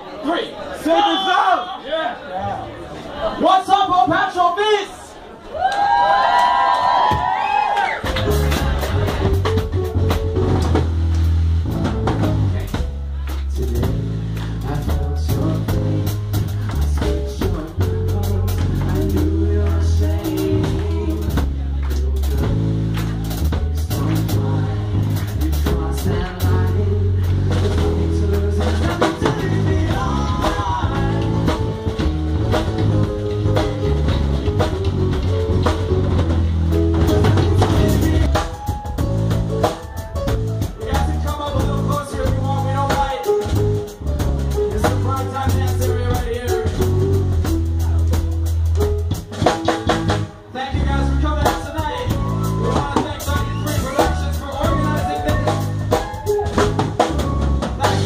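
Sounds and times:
live band playing: 6.8 - 58.0
drum hits: 8.0 - 26.8, 27.5 - 58.0
heavy bass line: 8.0 - 58.0
lead vocalist singing: 13.3 - 22.7, 23.7 - 31.9, 37.0 - 38.6, 40.8 - 43.6, 44.5 - 47.1, 50.5 - 56.6, 57.6 - 58.0.

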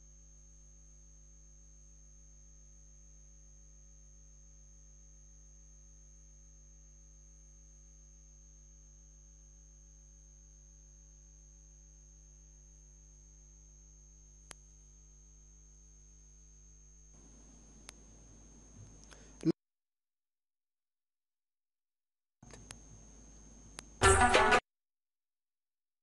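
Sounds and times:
electrical mains hum: 0.0 - 19.5, 22.4 - 24.5
click: 14.4 - 14.6, 18.8 - 19.5, 22.4 - 22.8, 23.7 - 23.9.

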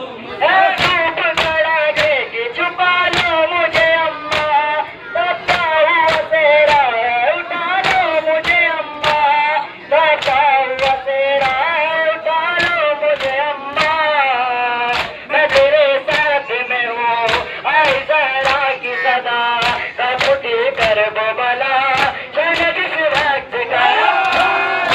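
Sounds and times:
voices chanting in unison: 0.0 - 14.0, 14.9 - 24.9
hands slapping chests: 0.8 - 2.2, 3.1 - 4.6, 7.8 - 9.3, 10.2 - 11.6, 12.6 - 14.0, 14.9 - 16.3, 17.3 - 18.7, 19.6 - 21.0, 21.9 - 23.4, 24.2 - 24.9.

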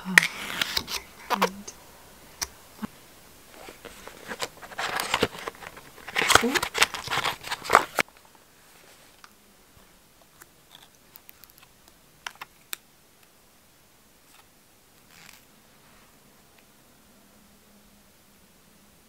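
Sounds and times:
packaging clicks and rustles: 3.6 - 8.1.

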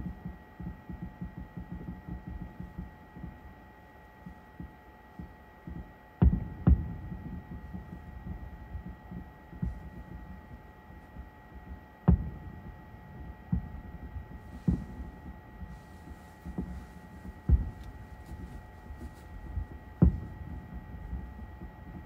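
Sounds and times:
steady low rumble: 6.4 - 22.0
distant firework shells booming: 12.1 - 22.0.

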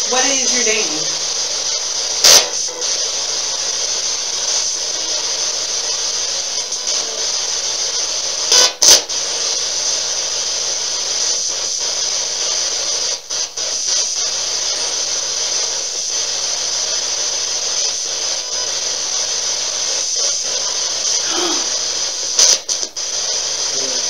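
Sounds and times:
loud radio static hiss: 0.0 - 24.0
short sharp blips: 2.2 - 2.8.

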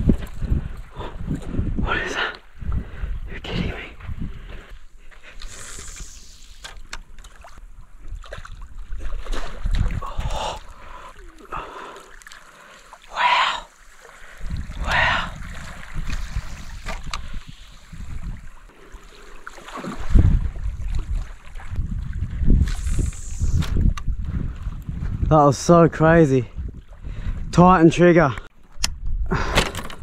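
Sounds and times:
wind buffeting microphone: 0.0 - 4.9, 8.0 - 10.6, 14.4 - 18.6, 20.0 - 28.2
water splashing: 5.3 - 23.9.

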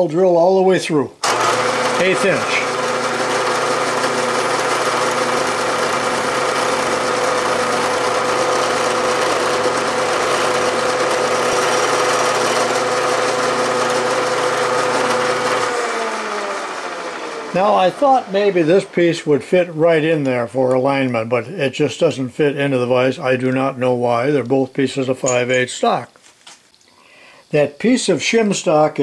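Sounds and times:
drill boring through metal: 1.2 - 19.8
drilling machine humming: 1.2 - 19.8.

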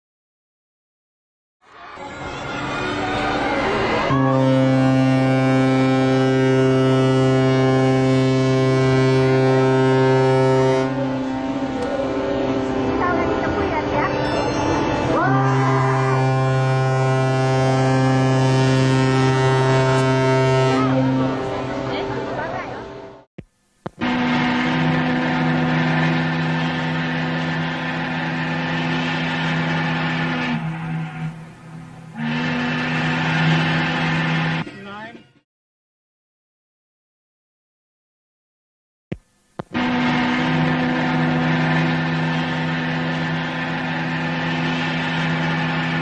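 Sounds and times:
two-note steam whistle blast: 2.0 - 12.9, 32.1 - 34.6
ship's whistle blast: 2.0 - 13.0, 14.2 - 21.5, 24.0 - 27.4, 28.2 - 31.4, 32.1 - 35.1.

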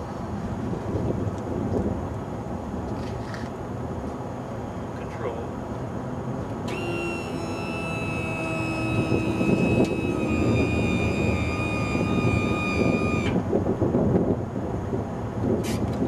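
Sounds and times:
hydraulic pump whining: 6.5 - 13.5.

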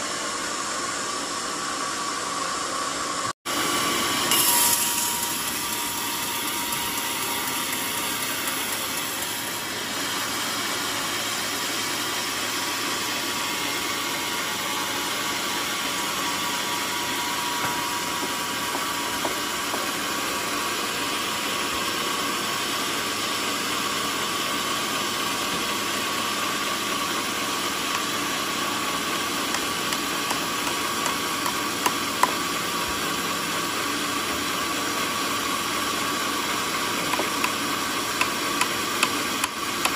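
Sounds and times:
band saw cutting log: 3.5 - 39.9
high whine: 13.4 - 22.4.

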